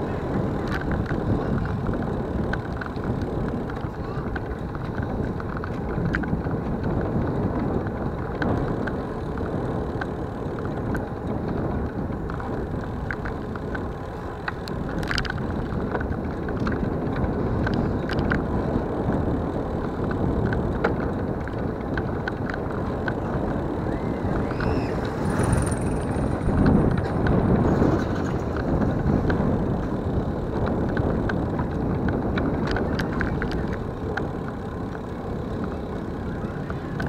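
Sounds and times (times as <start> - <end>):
wind and road noise: 0.0 - 37.0
small clicks and rattles: 0.6 - 37.0.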